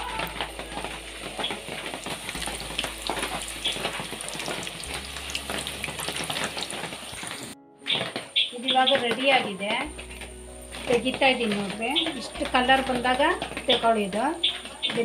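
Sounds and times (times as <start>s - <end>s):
dough sizzling in hot oil: 0.0s - 7.6s, 8.7s - 15.0s
ladle stirring in oil: 0.3s - 7.6s.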